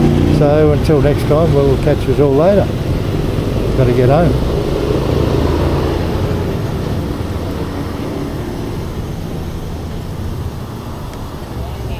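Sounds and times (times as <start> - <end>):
traffic engines rumbling: 0.0 - 11.9.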